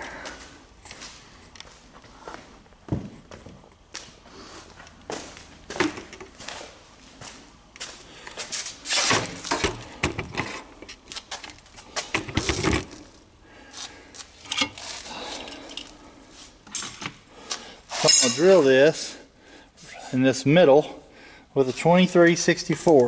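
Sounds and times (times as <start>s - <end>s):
metal tools clanking on steel: 18.0s - 18.8s.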